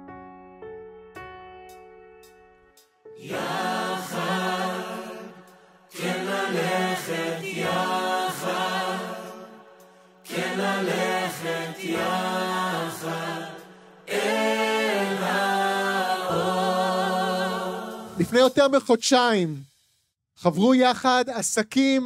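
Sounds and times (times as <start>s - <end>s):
group of voices singing: 3.2s - 18.5s.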